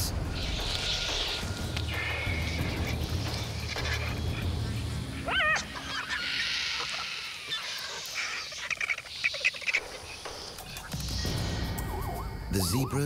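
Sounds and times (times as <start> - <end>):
vultures squealing: 0.3 - 4.5, 5.2 - 12.3
vulture harsh hiss: 0.3 - 11.9
sharp clicks and chirps: 7.5 - 12.7.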